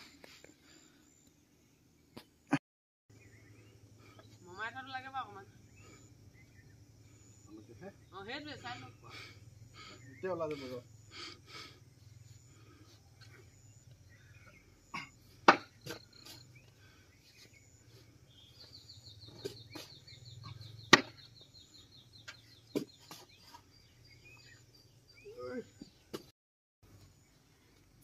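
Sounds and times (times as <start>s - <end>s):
steady low hum: 3.1s - 21.9s.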